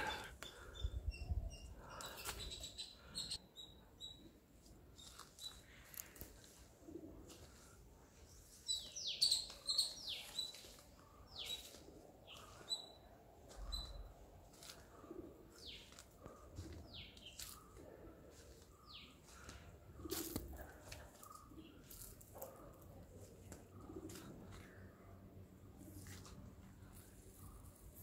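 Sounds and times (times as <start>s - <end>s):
small birds chirping: 0.0s - 6.8s, 7.4s - 22.6s.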